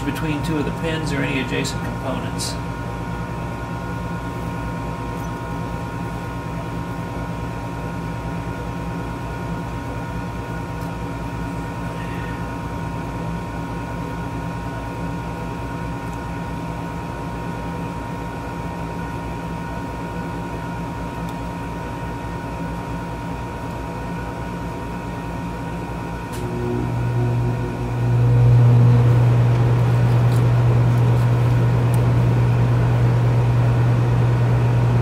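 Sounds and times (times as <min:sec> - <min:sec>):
machine hum: 0:00.0 - 0:35.0
high whine: 0:25.8 - 0:35.0.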